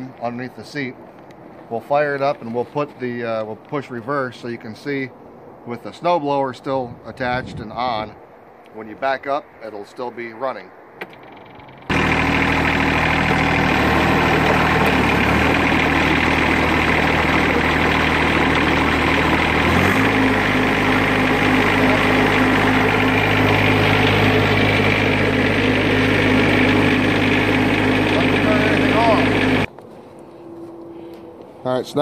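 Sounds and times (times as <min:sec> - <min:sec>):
tractor diesel engine running: 0:11.0 - 0:29.7.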